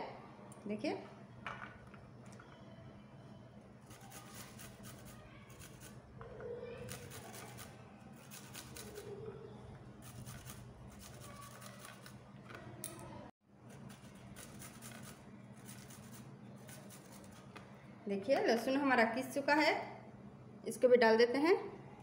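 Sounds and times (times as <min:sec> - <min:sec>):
garlic grated on metal grater: 0:03.8 - 0:06.0, 0:06.8 - 0:09.1, 0:10.0 - 0:12.1, 0:13.8 - 0:17.5.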